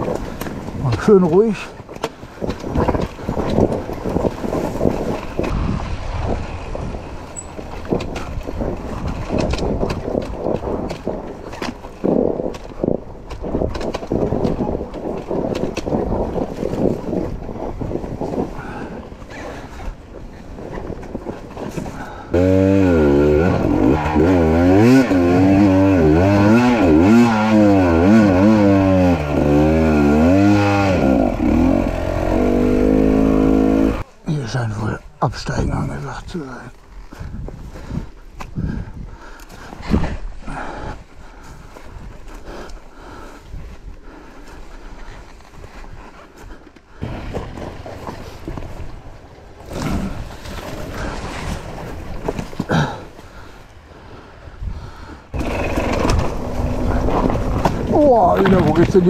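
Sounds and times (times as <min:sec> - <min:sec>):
dirt bike engine running: 0:02.3 - 0:11.7, 0:22.3 - 0:34.0, 0:55.3 - 0:59.0.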